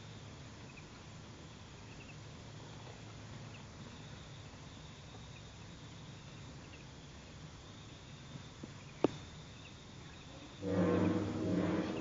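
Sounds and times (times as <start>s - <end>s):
low steady rumble: 0.0s - 12.0s
high insect trill: 3.7s - 12.0s.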